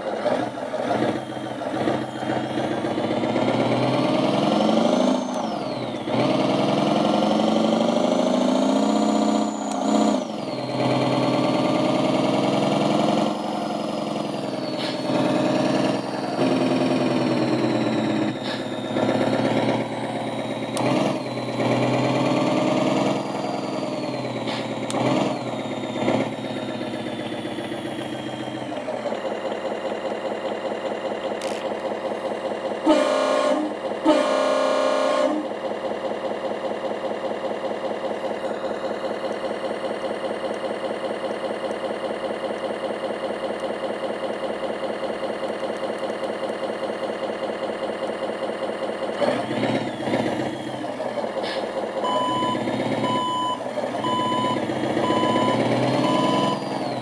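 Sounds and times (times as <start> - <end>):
simulated truck engine revving: 0.0 - 57.0
simulated truck horn: 32.8 - 35.6.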